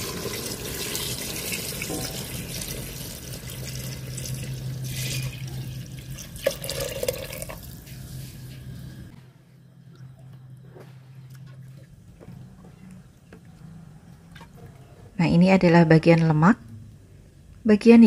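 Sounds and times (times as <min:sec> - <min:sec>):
liquid pouring into a pot: 0:00.0 - 0:08.0.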